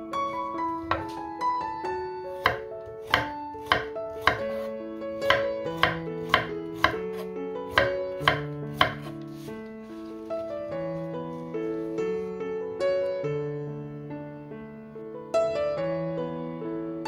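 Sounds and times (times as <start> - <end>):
background music: 0.0 - 17.0
knife tapping on cutting board: 0.9 - 1.2, 2.4 - 9.1.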